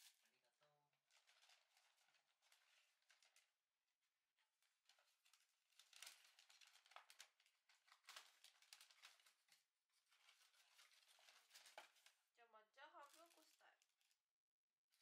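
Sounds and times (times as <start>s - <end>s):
paper bag rustling: 1.0s - 3.6s, 4.6s - 12.3s, 13.0s - 14.2s.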